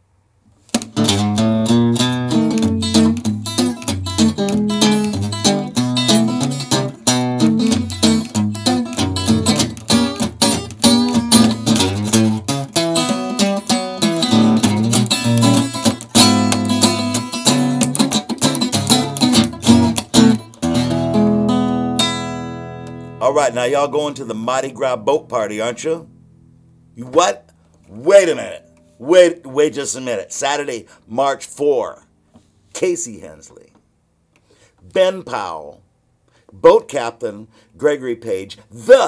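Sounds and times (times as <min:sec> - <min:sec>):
acoustic guitar strumming: 0:00.7 - 0:29.0.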